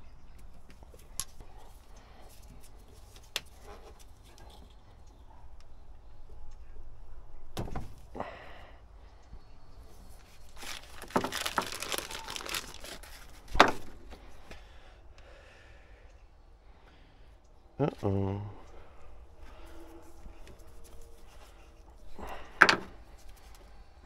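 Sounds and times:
plastic packaging crinkling: 0:10.2 - 0:13.5.

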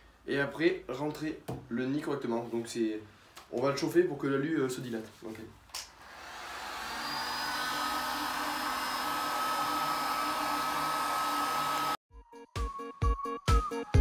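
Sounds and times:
heat gun blowing with fan whine: 0:06.0 - 0:12.0.

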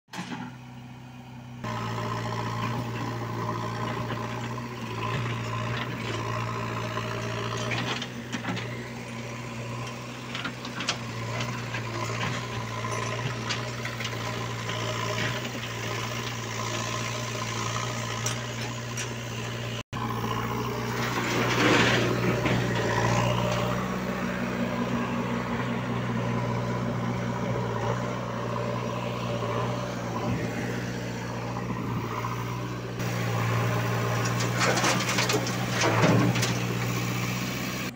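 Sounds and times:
diesel engines humming: 0:00.1 - 0:37.9
knocks and clatter: 0:33.0 - 0:37.2.

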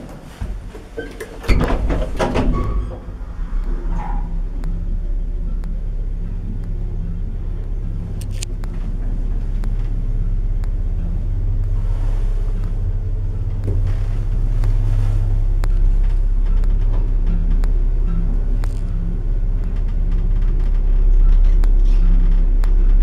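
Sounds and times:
elevator drive hum and rumble: 0:00.0 - 0:23.0
clicks and ticks: 0:02.6 - 0:07.0, 0:07.6 - 0:11.8, 0:13.5 - 0:23.0.

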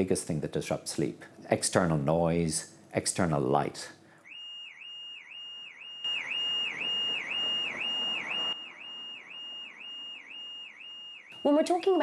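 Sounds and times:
car alarm sounding: 0:04.2 - 0:12.0.

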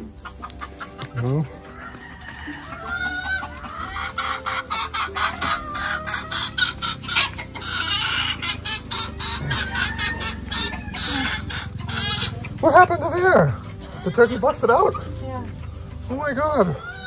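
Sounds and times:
chickens clucking: 0:00.0 - 0:17.0
rooster crowing: 0:01.6 - 0:06.9, 0:09.0 - 0:11.8.

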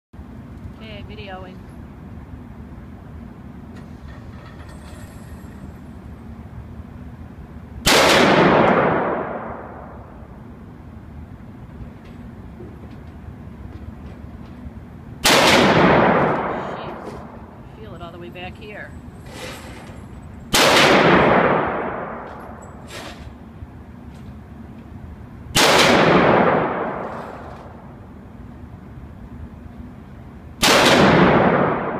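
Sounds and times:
gunshot with echoing tail: 0:07.9 - 0:10.0, 0:15.2 - 0:17.4, 0:20.5 - 0:22.6, 0:25.6 - 0:27.4, 0:30.6 - 0:31.9.

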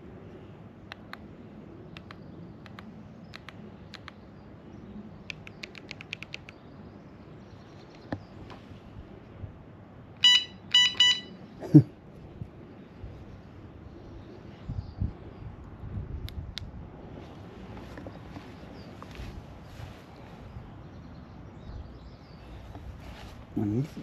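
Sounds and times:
short electronic beeps: 0:10.2 - 0:11.4.

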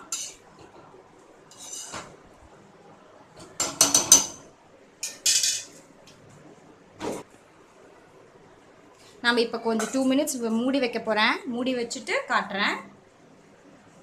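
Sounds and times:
steel spoons clinking on metal pan: 0:05.0 - 0:05.7.

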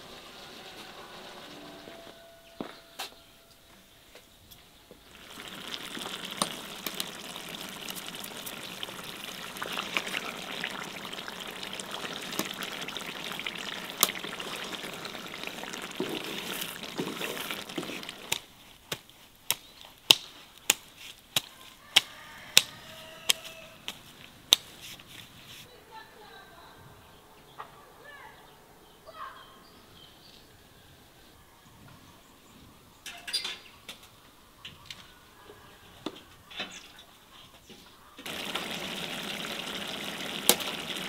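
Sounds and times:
water pouring: 0:05.1 - 0:18.4, 0:38.2 - 0:41.0.

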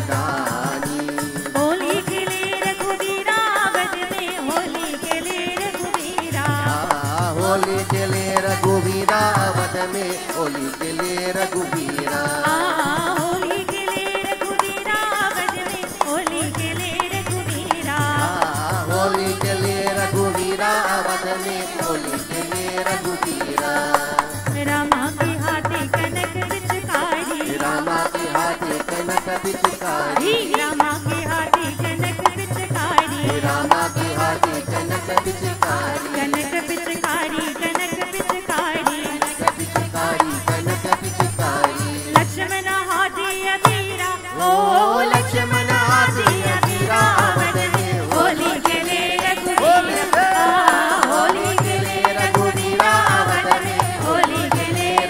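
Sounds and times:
hand drum beat: 0:00.0 - 0:42.6, 0:45.0 - 0:55.0
group of voices singing: 0:00.0 - 0:55.0
jingling hand cymbals: 0:00.0 - 0:55.0.

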